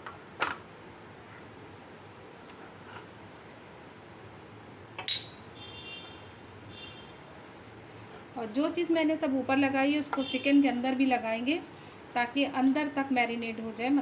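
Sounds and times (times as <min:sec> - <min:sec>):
metallic clink with ring: 0:05.1 - 0:05.4
hands rubbing raw chicken: 0:06.4 - 0:08.4.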